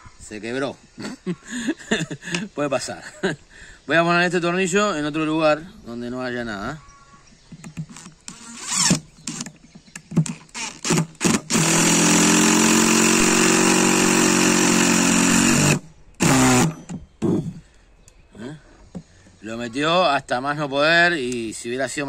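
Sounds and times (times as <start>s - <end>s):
impact driver hammering screw: 10.2s - 17.4s.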